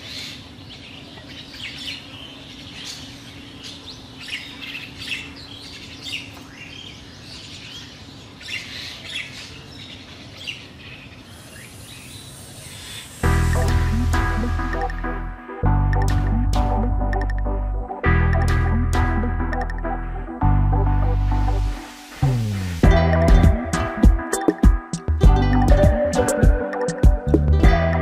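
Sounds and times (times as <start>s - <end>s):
small birds chirping: 0.0s - 13.3s
steady low hum: 10.0s - 24.0s.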